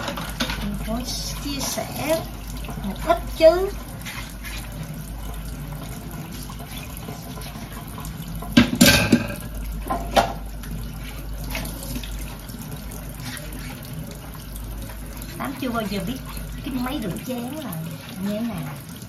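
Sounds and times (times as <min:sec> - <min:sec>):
dishes clattering: 0:00.0 - 0:00.8, 0:08.4 - 0:10.5
faucet running into steel sink: 0:00.0 - 0:19.0.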